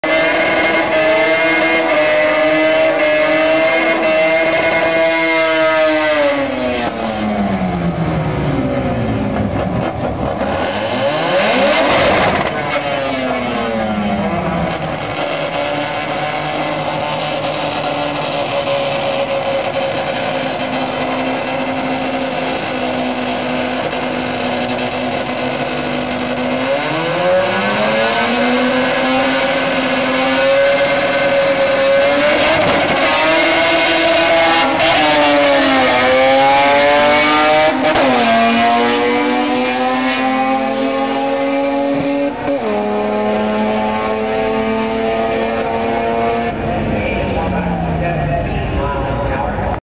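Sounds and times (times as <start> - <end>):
car engines revving: 0.0 - 49.8
cars accelerating with gear shifts: 0.0 - 49.8
car engines idling: 6.7 - 26.7, 46.2 - 49.8.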